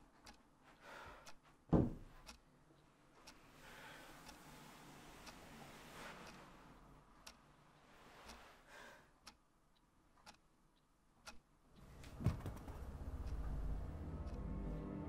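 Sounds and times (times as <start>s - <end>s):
faint clock ticking: 0.0s - 15.0s
deep thump: 1.7s - 2.1s.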